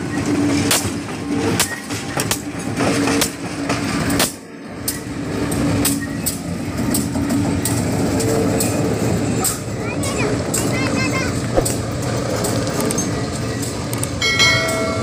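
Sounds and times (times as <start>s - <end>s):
train wheels clacking: 0.0s - 15.0s
diesel engine hum: 6.5s - 14.5s.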